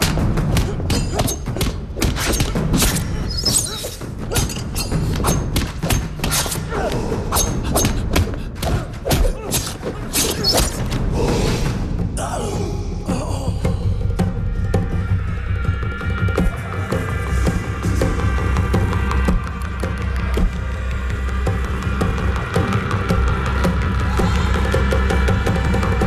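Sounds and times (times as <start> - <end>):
dramatic music score: 0.0 - 26.0.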